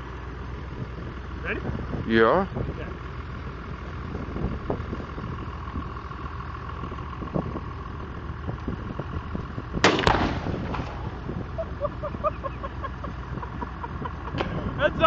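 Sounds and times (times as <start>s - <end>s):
low background rumble: 0.0s - 15.0s
explosion double crack: 9.8s - 11.6s.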